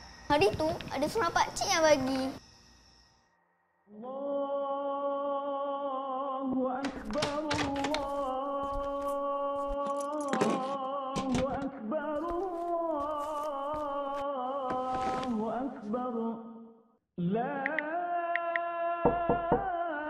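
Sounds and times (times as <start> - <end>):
wavering vocal line: 3.9 - 20.0
sharp knocks: 19.1 - 19.7.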